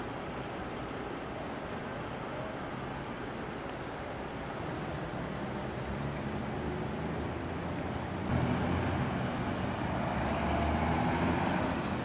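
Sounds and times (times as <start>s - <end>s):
truck engine hum: 3.8s - 12.0s.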